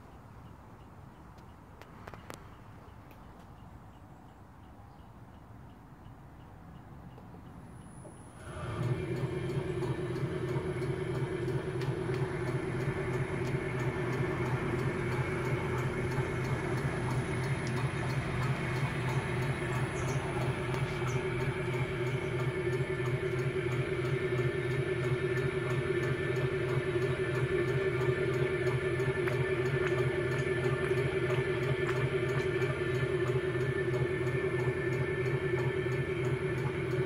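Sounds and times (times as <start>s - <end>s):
stone grinder humming and rattling: 8.4s - 36.8s.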